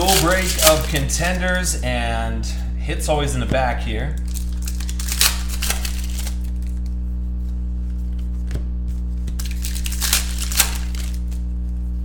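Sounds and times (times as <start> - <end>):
foil wrappers crinkling and tearing: 0.0 - 1.8, 4.2 - 7.0, 9.0 - 11.7
steady low hum: 0.0 - 12.0.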